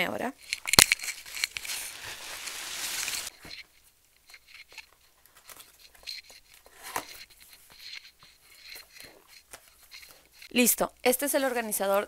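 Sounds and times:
packaging crinkling: 0:00.4 - 0:03.3.

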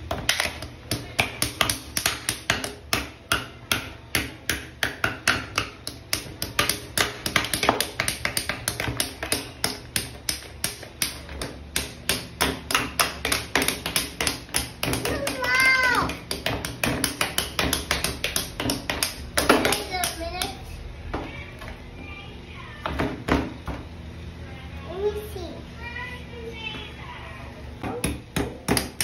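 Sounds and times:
toy hammers tapping on ice: 0:00.0 - 0:20.7.

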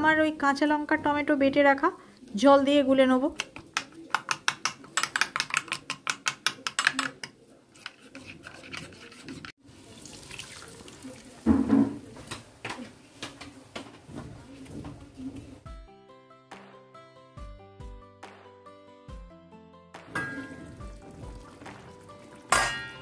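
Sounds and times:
spoon scraping in pan: 0:03.5 - 0:09.6
spoon clinking against bowl: 0:22.5 - 0:23.0.

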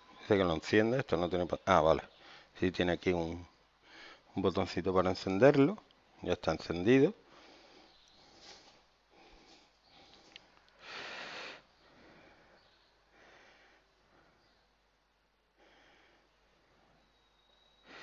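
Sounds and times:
person breathing out hard: 0:07.3 - 0:14.5, 0:15.6 - 0:16.4.

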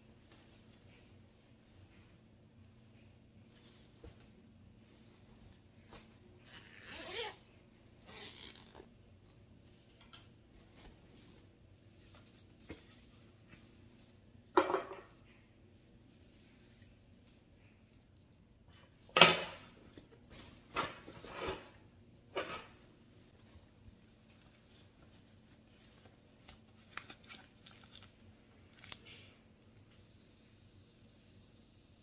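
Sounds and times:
metal hooks and buckle clinking: 0:17.7 - 0:18.5.

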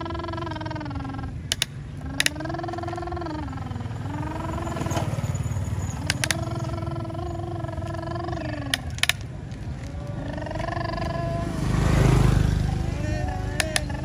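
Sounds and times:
child making engine noises: 0:00.0 - 0:05.2, 0:06.0 - 0:09.1, 0:10.0 - 0:14.0
plastic clicks: 0:01.5 - 0:02.9, 0:06.0 - 0:06.6, 0:08.6 - 0:10.7, 0:13.6 - 0:14.0.

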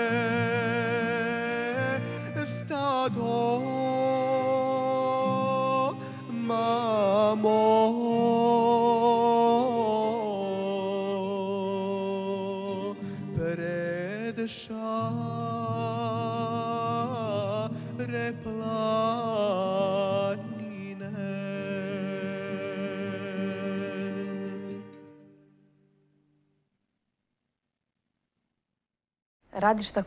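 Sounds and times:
accordion: 0:00.0 - 0:13.6
man singing folk song: 0:00.0 - 0:25.2
acoustic guitar: 0:00.0 - 0:26.6.

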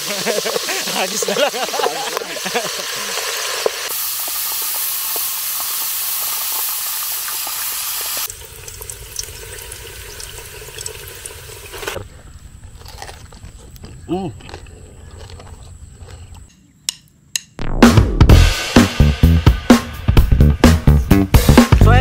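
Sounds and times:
oil crackling: 0:00.0 - 0:12.0
pressure cooker hissing: 0:00.0 - 0:12.0.

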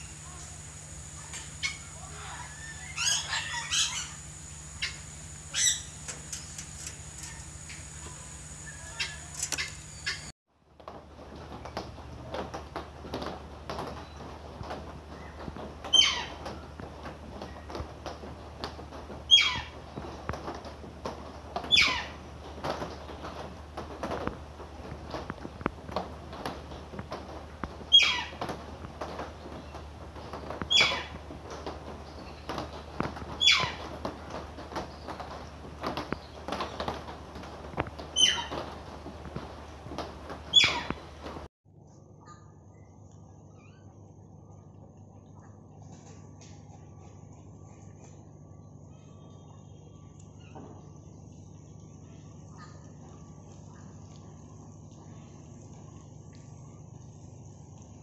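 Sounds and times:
harsh parrot call: 0:00.1 - 0:06.4.

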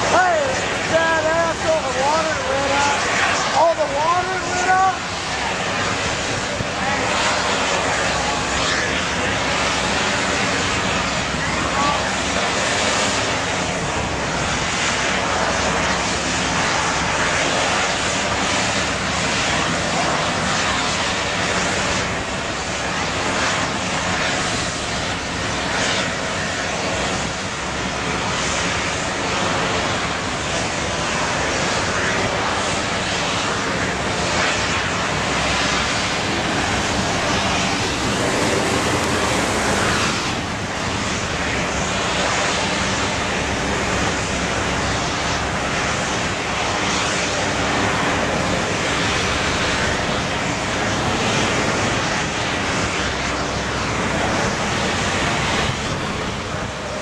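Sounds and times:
loud machinery drone: 0:00.0 - 0:57.0
wind noise: 0:04.4 - 0:57.0
water noise: 0:21.2 - 0:52.5.

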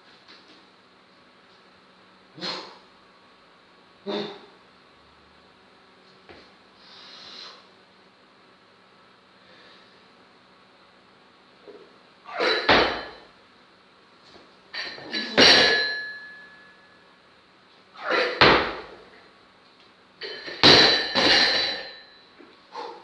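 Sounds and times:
barbell dropped with heavy thud: 0:12.4 - 0:13.2, 0:14.8 - 0:16.2, 0:18.1 - 0:19.0, 0:20.2 - 0:22.0
bar and plates ringing: 0:12.4 - 0:13.3, 0:14.8 - 0:16.9, 0:20.2 - 0:22.2
barbell plates clanking: 0:14.8 - 0:16.3, 0:20.2 - 0:22.1.

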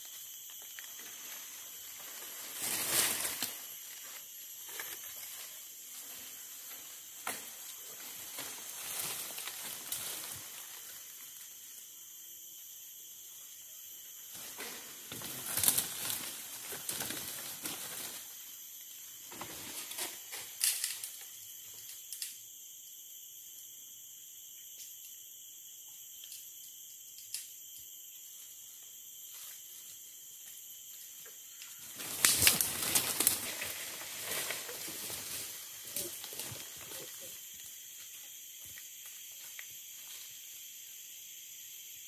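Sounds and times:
leaves and branches rustling: 0:00.0 - 0:11.8, 0:14.3 - 0:21.3, 0:30.9 - 0:40.4
high-pitched insect chorus: 0:00.0 - 0:42.0.

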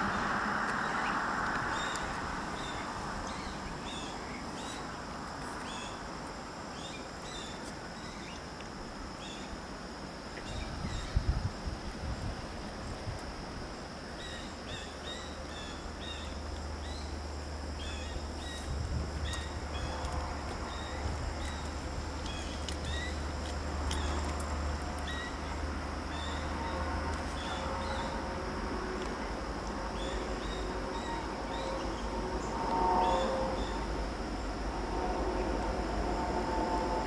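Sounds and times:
diesel locomotive rumble: 0:00.0 - 0:04.2, 0:15.8 - 0:37.0
high insect drone: 0:00.0 - 0:37.0.

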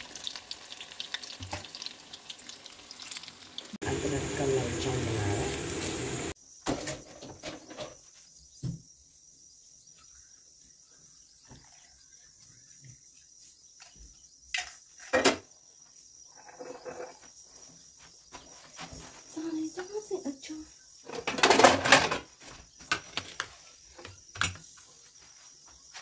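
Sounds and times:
tea pouring into cups: 0:00.0 - 0:06.4.

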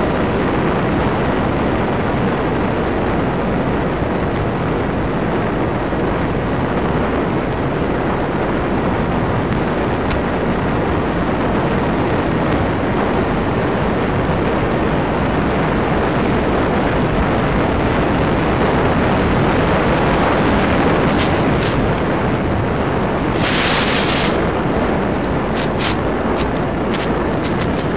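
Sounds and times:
radio interference crackles: 0:00.0 - 0:27.9
loud rushing hiss: 0:19.3 - 0:27.9.

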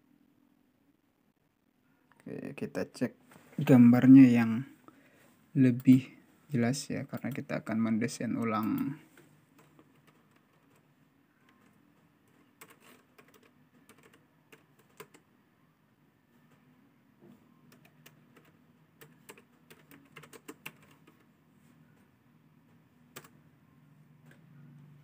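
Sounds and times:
faint low hum: 0:00.0 - 0:25.0
keyboard and mouse clicks: 0:05.7 - 0:06.1, 0:08.3 - 0:15.2, 0:17.7 - 0:21.3, 0:23.1 - 0:23.4.

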